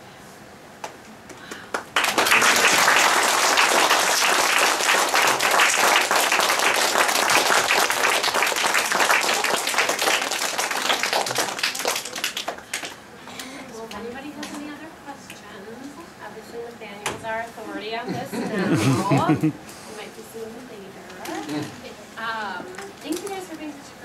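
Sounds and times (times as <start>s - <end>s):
children applauding: 1.4s - 13.0s.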